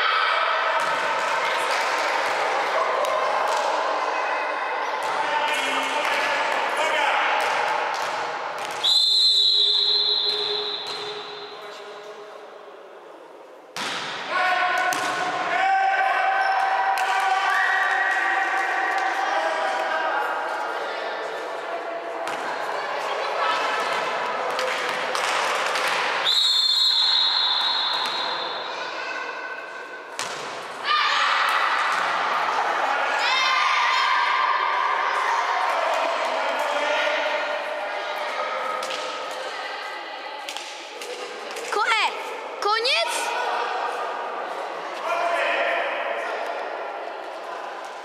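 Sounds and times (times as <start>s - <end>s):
referee's whistle: 8.8s - 11.6s, 26.2s - 28.7s
volleyball smack: 13.8s - 14.2s.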